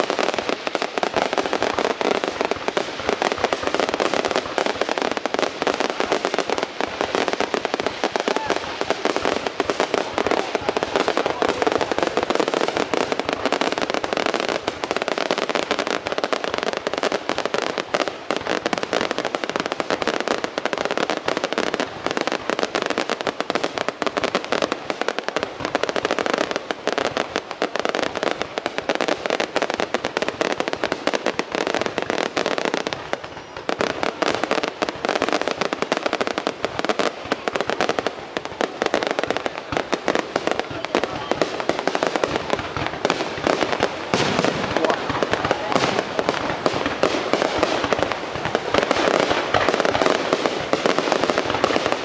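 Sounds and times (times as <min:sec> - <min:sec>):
fireworks banging and crackling: 0:00.0 - 0:52.0.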